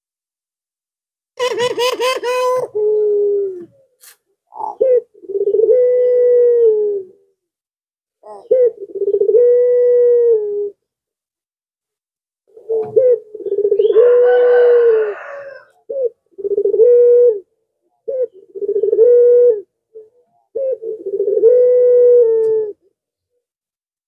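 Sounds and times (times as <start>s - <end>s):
dove cooing: 1.4s - 7.3s, 8.2s - 10.8s, 12.5s - 22.9s.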